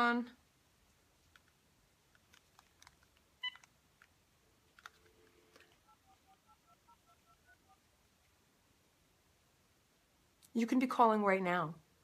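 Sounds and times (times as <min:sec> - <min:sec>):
steady low dial tone: 0:04.8 - 0:07.9
touch-tone dialing beeps: 0:05.7 - 0:07.8.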